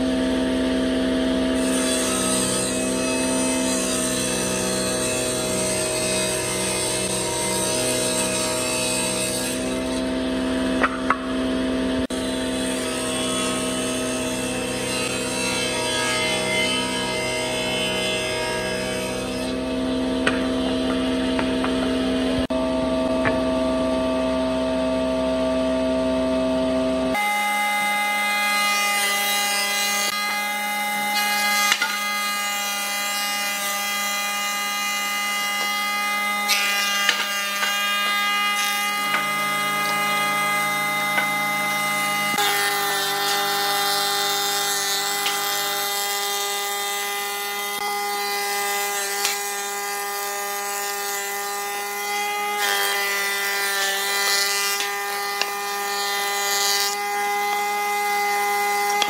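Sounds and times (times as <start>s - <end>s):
thickness planer motor whine: 0.0s - 59.0s.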